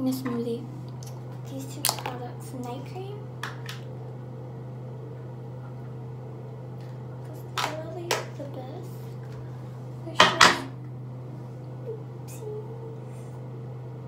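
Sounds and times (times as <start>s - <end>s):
exhaust fan humming: 0.0s - 14.0s.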